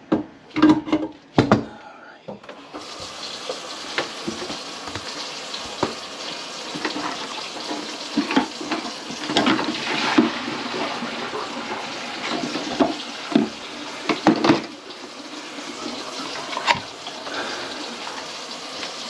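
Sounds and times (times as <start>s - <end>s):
objects knocking and clattering: 0.0s - 1.7s, 6.7s - 10.5s, 12.3s - 14.7s
water splashing in a sink: 2.6s - 19.0s.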